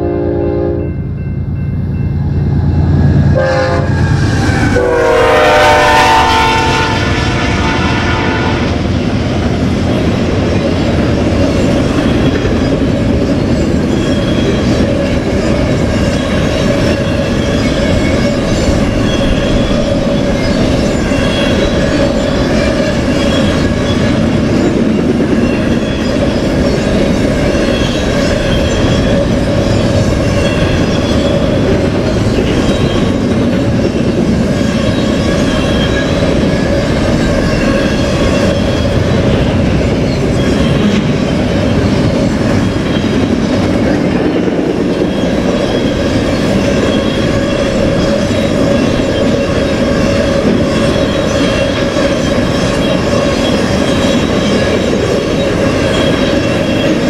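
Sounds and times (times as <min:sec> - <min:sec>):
train wheels rumbling on rail: 0:00.0 - 0:57.0
high-pitched wheel squeals: 0:11.6 - 0:57.0.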